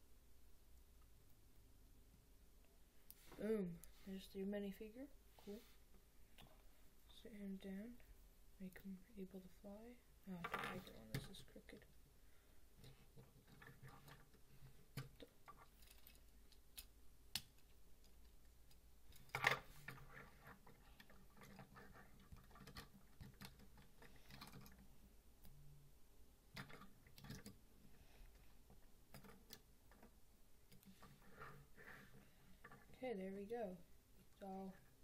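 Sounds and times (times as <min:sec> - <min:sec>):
plastic pieces clicking: 0:13.2 - 0:25.6, 0:26.5 - 0:27.6.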